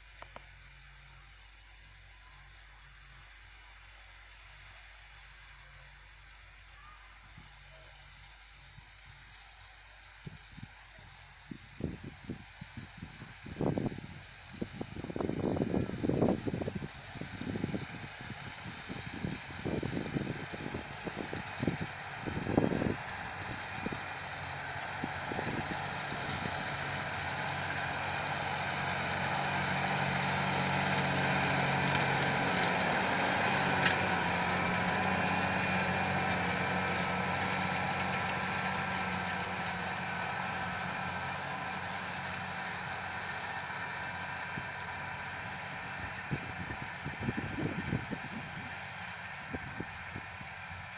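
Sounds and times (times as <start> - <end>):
tractor diesel engine running: 0.0 - 50.9
wind buffeting microphone: 11.5 - 37.6, 45.9 - 50.9.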